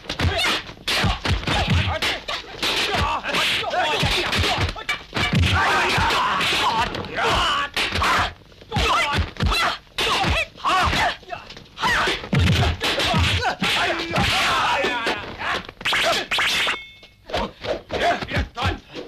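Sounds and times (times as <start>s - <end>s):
fighters yelling: 0.2s - 16.3s, 17.4s - 18.9s
punch and kick whacks: 12.3s - 14.5s.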